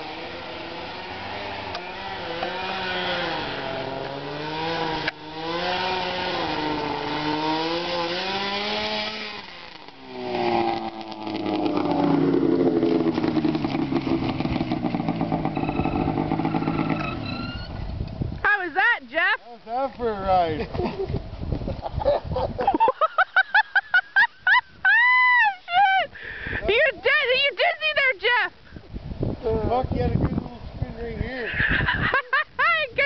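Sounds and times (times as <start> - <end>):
snowmobile engine: 0.0 - 17.8.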